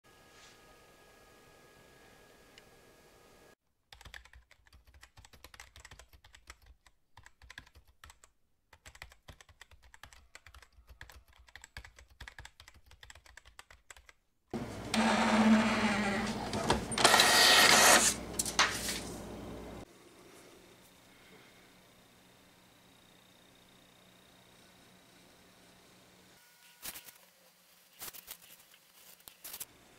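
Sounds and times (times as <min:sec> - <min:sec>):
computer keyboard clicking: 0:03.9 - 0:14.2
home printer running: 0:14.6 - 0:19.8.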